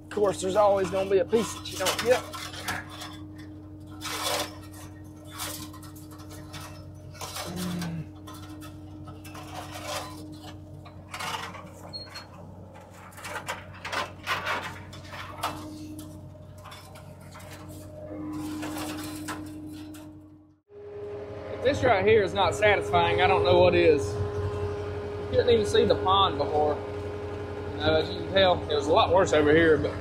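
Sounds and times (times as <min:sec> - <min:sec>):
wire clinking and rattling: 0:00.0 - 0:20.4
steady low hum: 0:00.0 - 0:30.0.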